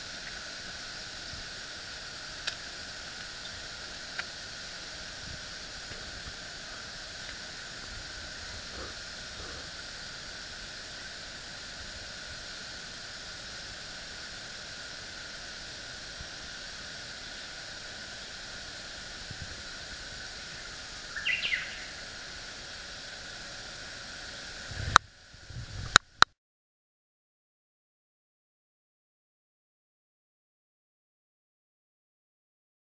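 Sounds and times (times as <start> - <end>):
high insect drone: 0.0 - 26.3
bird chirp: 21.1 - 21.9.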